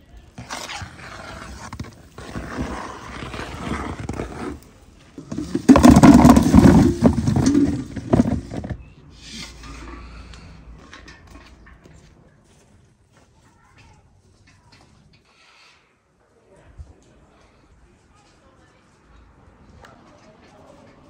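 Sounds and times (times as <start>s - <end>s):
apples clattering into bowl: 5.2s - 9.9s.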